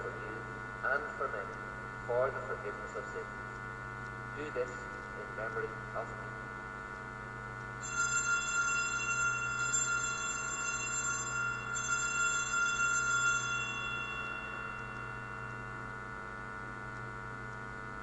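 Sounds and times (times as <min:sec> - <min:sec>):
low electrical hum: 0:00.0 - 0:18.0
altar bell ringing: 0:07.8 - 0:16.4.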